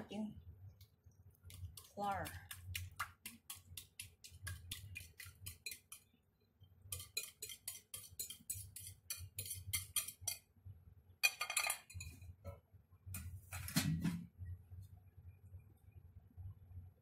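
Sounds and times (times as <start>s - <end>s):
spatula scraping ceramic bowl: 1.5s - 6.0s, 6.9s - 10.4s
dishware clattering: 11.2s - 12.2s.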